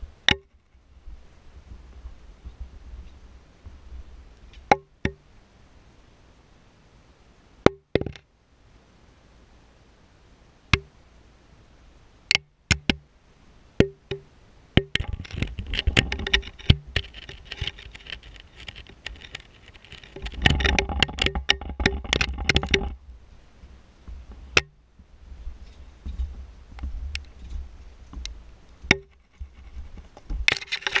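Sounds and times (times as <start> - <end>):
scraping and rattling in pipe: 15.0 - 23.0, 28.9 - 31.0.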